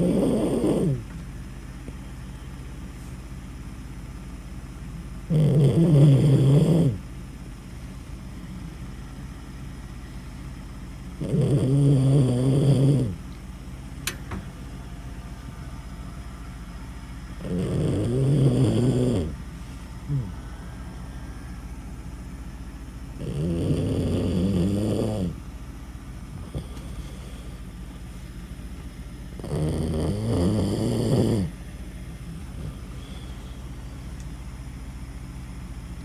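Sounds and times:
dog snoring: 0.0 - 1.1, 5.2 - 7.0, 11.1 - 13.2, 17.4 - 19.4, 20.1 - 20.4, 23.1 - 25.4, 26.3 - 27.6, 29.3 - 31.6, 32.5 - 33.6
dog breathing quietly: 26.3 - 28.5, 32.4 - 34.0.

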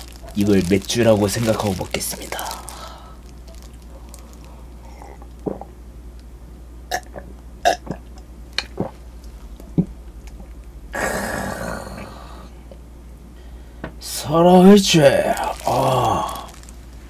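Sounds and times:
man gulping a drink: 4.8 - 5.8, 6.9 - 9.0
raspy burp-like throat sound: 6.9 - 8.2, 10.9 - 12.2.

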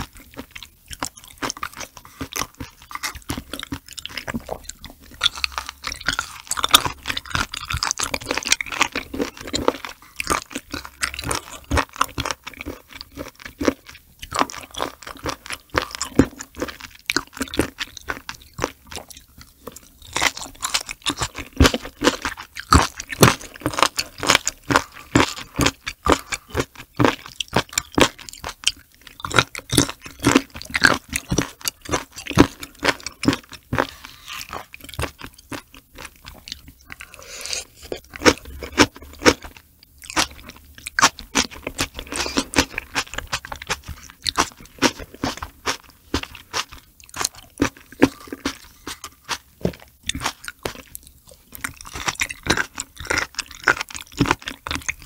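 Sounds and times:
wet crunchy chewing: 0.0 - 55.0
slurping: 36.1 - 39.2.

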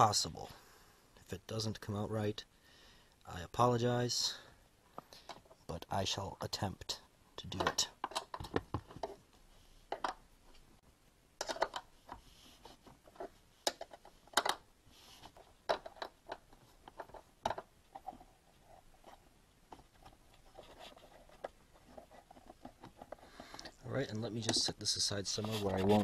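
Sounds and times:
metal and plastic scraping: 11.4 - 26.0.

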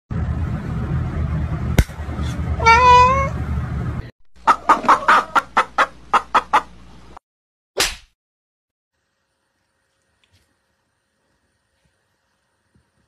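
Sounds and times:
hens clucking: 4.4 - 6.8.

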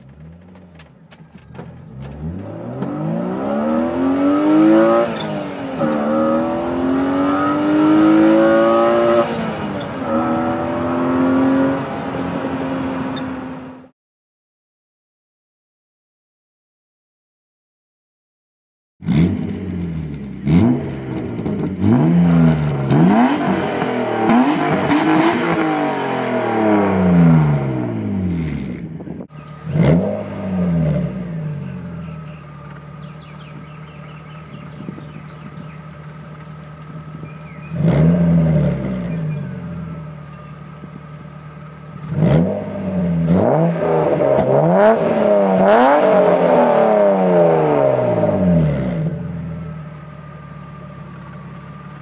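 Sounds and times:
car engine idling: 0.0 - 3.2, 19.3 - 52.0
car engine revving: 0.0 - 13.9, 19.0 - 52.0.

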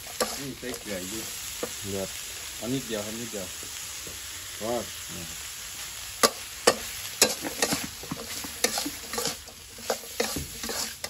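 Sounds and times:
metal spoon scraping a wok: 0.0 - 0.9, 6.2 - 11.0
stir-fry sizzling in oil: 0.0 - 11.0.

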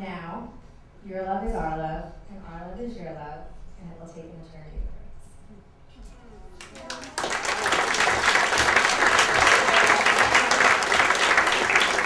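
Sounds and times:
crowd applauding: 6.6 - 12.0.

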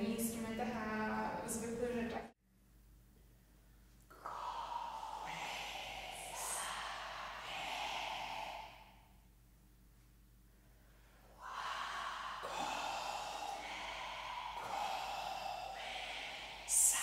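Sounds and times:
group making breathy exhaled sounds: 4.1 - 9.3, 10.6 - 17.0.

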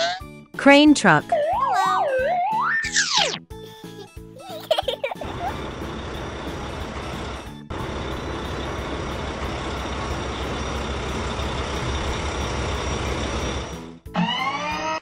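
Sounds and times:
plucked music with rising notes: 1.2 - 3.5, 5.2 - 15.0
truck engine rumbling: 5.2 - 14.1.

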